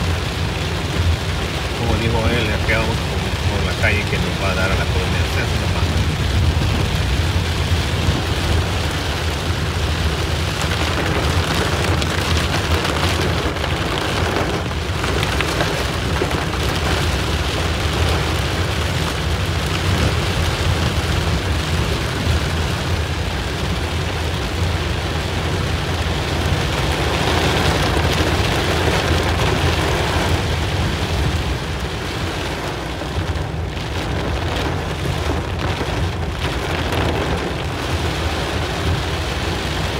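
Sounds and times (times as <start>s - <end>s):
rain pelting car roof: 0.0s - 39.9s.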